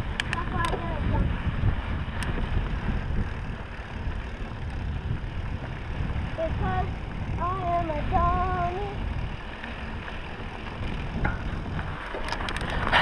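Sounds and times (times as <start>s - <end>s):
tyres rolling over dirt: 0.0s - 13.0s
wind buffeting microphone: 0.0s - 13.0s
clicks and rattles: 10.8s - 13.0s.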